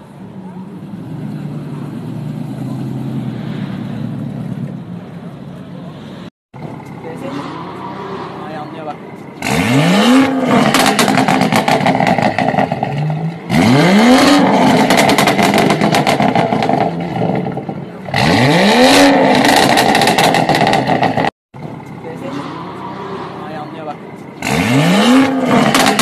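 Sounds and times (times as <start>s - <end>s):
car engine revving: 6.6s - 26.0s
exhaust popping and crackling: 8.9s - 23.0s, 23.6s - 26.0s.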